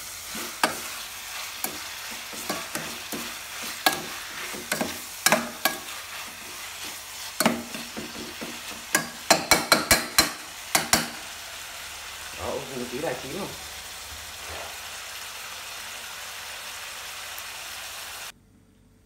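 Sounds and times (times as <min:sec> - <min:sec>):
food sizzling: 0:00.0 - 0:18.3
spoon clinking and scraping pot: 0:00.3 - 0:11.3.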